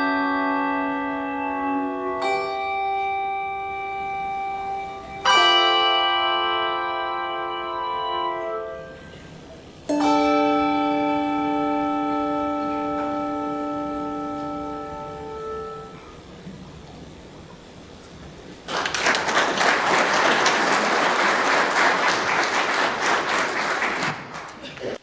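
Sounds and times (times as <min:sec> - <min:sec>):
handbell choir ringing chords: 0:00.0 - 0:09.0.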